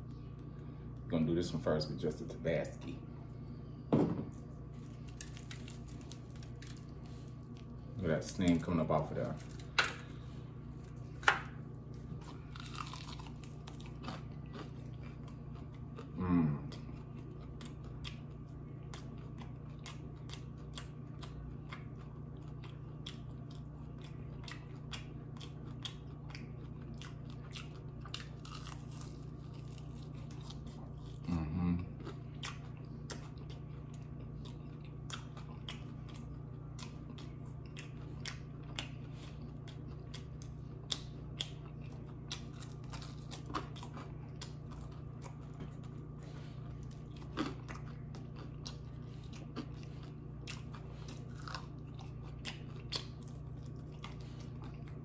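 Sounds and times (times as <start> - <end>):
crunchy chewing of fried chicken: 0.0 - 55.0
steady low hum: 0.0 - 55.0.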